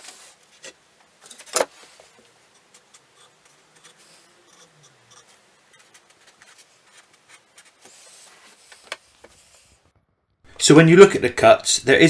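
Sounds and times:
marker pen scratching on wood: 0:02.4 - 0:09.8.

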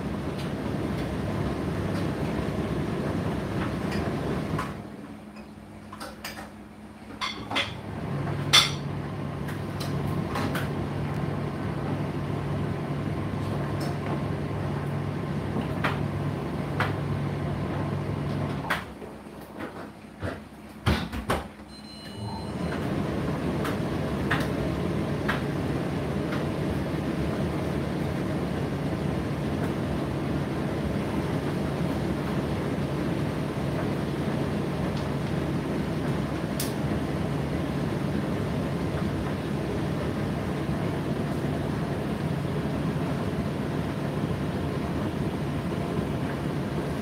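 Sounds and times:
tumble dryer humming: 0:00.0 - 0:05.3, 0:07.8 - 0:19.6, 0:22.1 - 0:47.0.

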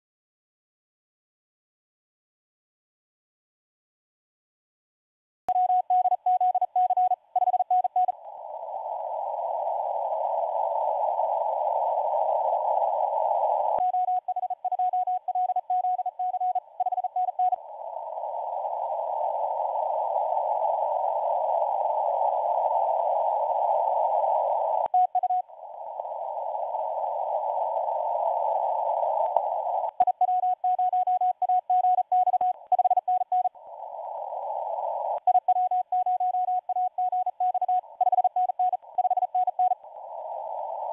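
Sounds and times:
morse code tone: 0:05.5 - 0:08.2, 0:13.8 - 0:17.6, 0:29.9 - 0:33.6, 0:35.2 - 0:39.8
radio band noise hiss: 0:07.7 - 0:31.8.

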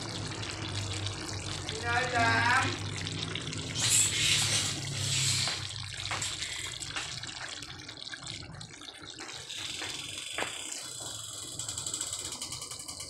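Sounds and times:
sauce bubbling with pops: 0:00.0 - 0:01.8, 0:02.6 - 0:12.5
sauce hissing in pan: 0:00.3 - 0:07.3.

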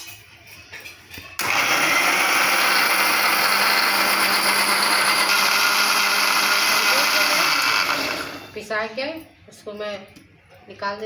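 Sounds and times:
mixer grinder whirring: 0:01.4 - 0:08.6.

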